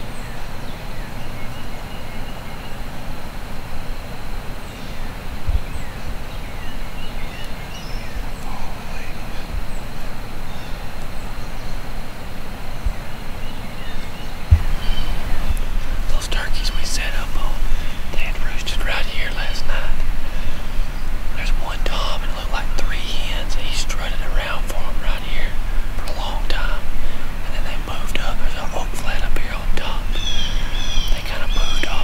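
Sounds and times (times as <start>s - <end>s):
songbirds chirping: 0.0s - 32.0s
steady low rumble: 0.0s - 32.0s
dull low thumps: 5.4s - 5.7s, 14.4s - 18.7s.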